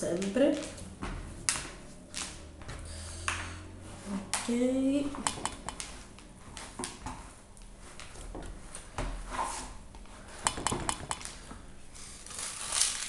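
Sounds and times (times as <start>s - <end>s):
sharp clicks: 5.2s - 5.9s.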